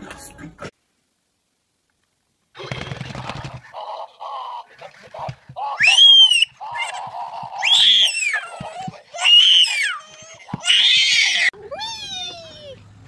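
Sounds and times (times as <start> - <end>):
baby shrieking with laughter: 5.6 - 12.8.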